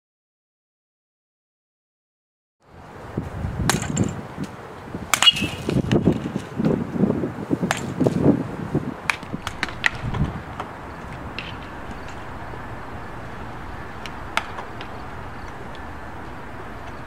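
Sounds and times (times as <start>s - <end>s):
baseball bats cracking balls: 3.6s - 6.9s, 7.6s - 17.0s
low rumble: 9.1s - 17.0s.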